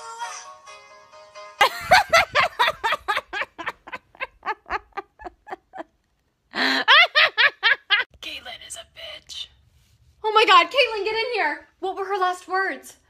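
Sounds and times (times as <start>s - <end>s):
woman laughing: 1.6s - 8.1s.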